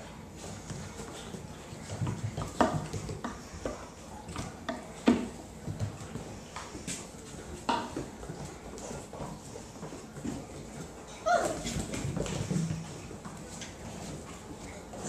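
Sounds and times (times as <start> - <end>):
puppies scuffling on tile: 0.0 - 15.0.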